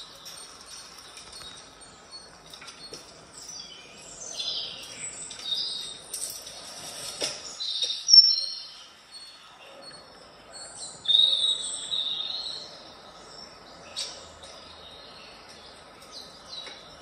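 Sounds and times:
recorded bird chirps from speaker: 0:07.4 - 0:17.0.

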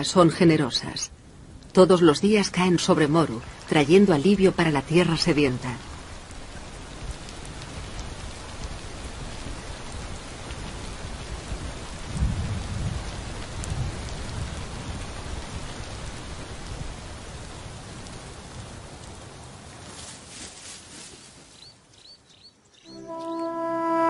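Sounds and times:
heavy rain falling: 0:00.0 - 0:20.7
low rumble of thunder: 0:05.2 - 0:19.4.

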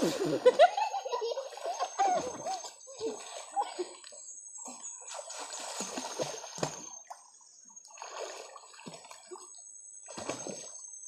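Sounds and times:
water splashing from swimmers: 0:00.0 - 0:04.2, 0:04.8 - 0:07.2, 0:07.9 - 0:09.5.

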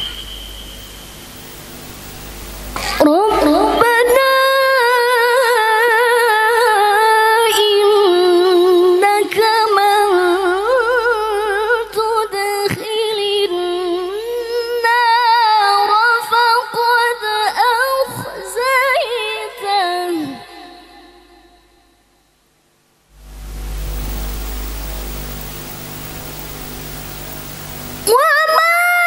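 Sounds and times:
woman reciting melodically: 0:02.8 - 0:21.6, 0:28.1 - 0:29.0.

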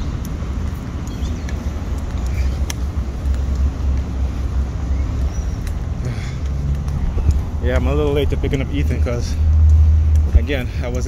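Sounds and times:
street traffic rumble: 0:00.0 - 0:11.0.

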